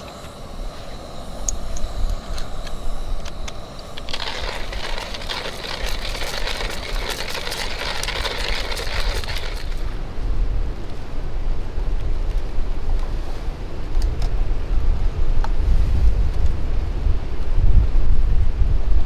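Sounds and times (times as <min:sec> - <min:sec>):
coffee beans clicking: 0:01.4 - 0:10.0
hand grinder crunching: 0:03.9 - 0:10.0.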